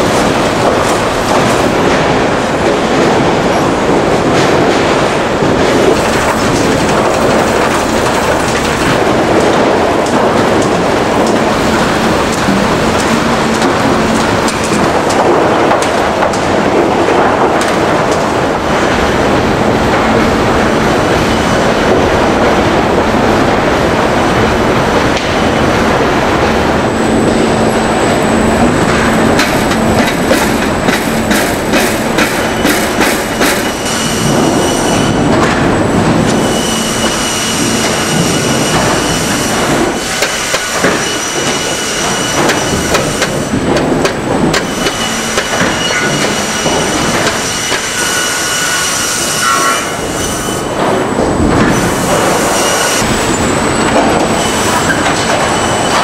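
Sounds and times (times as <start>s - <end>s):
conveyor clatter and rumble: 0.0s - 56.0s.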